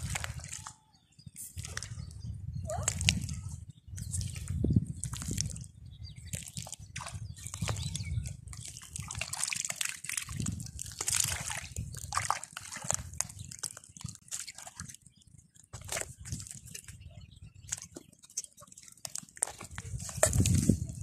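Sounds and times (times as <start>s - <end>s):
hands splashing in muddy water: 0.0s - 0.8s, 4.0s - 5.7s, 6.3s - 15.0s.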